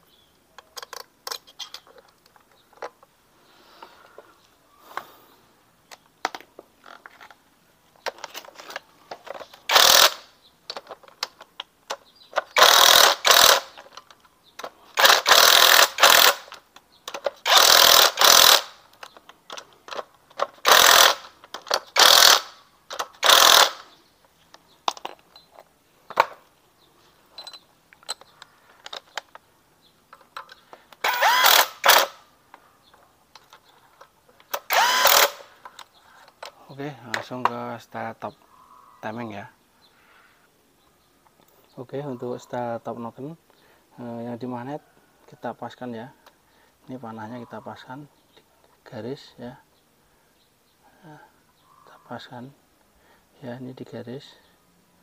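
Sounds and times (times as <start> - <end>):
metal clicks of tools: 0.5 - 3.1, 10.7 - 23.6, 27.3 - 29.4
cordless drill driving bolts: 8.1 - 11.2, 12.4 - 23.9, 30.3 - 32.2, 34.4 - 35.8.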